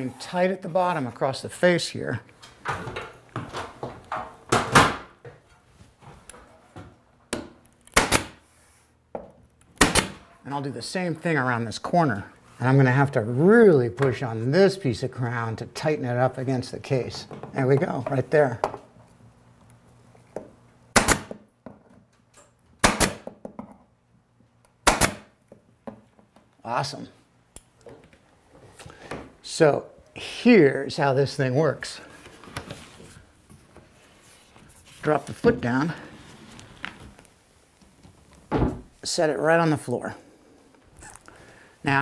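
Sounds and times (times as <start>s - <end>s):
nail gun firing: 8.0s - 8.4s, 9.8s - 10.2s, 20.9s - 21.4s, 22.8s - 23.2s, 24.8s - 25.3s.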